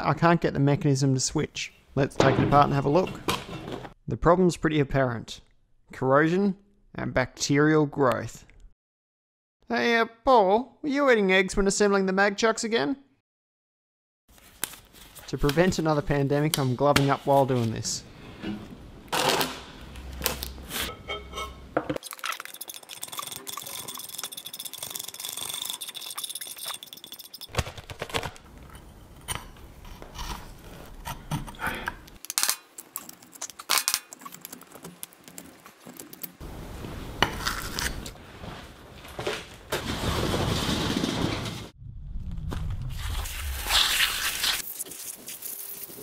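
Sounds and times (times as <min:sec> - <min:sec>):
metal scraper scraping steel: 0:20.7 - 0:21.8.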